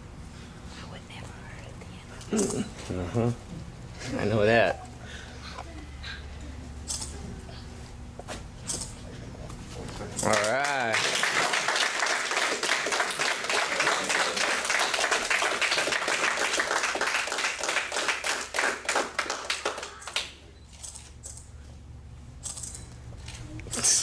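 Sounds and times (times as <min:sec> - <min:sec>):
group clapping: 0:10.2 - 0:20.4.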